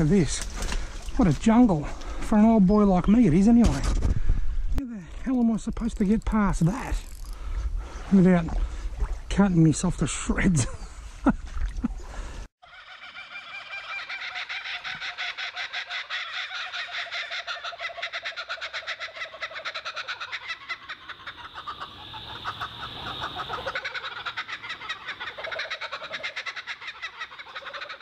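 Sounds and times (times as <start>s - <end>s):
rapid pulsed animal call: 12.6s - 28.0s.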